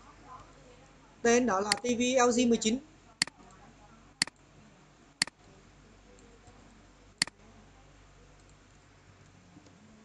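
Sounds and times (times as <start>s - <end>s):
faint room hum: 0.0s - 10.0s
computer clicks: 4.2s - 4.4s.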